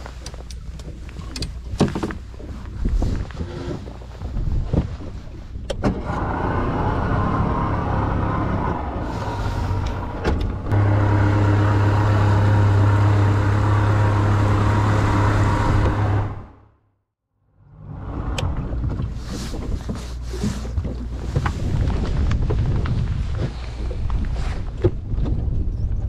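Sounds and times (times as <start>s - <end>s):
outboard motor running: 6.2s - 16.7s.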